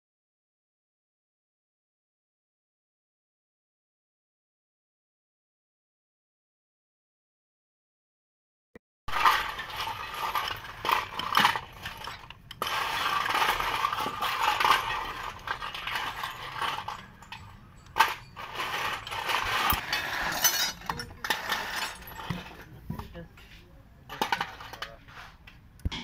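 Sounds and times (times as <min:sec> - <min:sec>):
spanner clinking on steel: 0:14.4 - 0:22.8.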